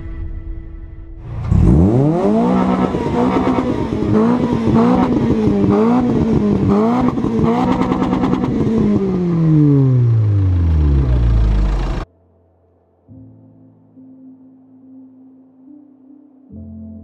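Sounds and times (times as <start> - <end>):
car engine revving: 1.2 - 12.1.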